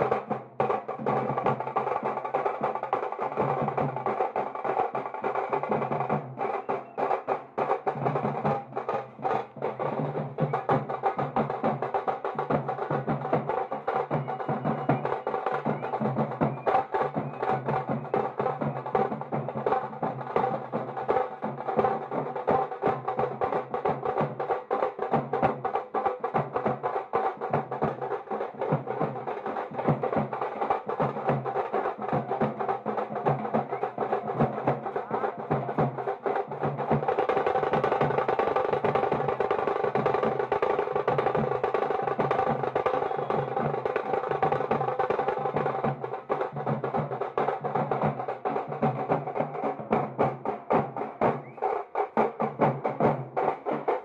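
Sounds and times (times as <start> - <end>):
drums beaten with sticks: 0.0 - 54.0.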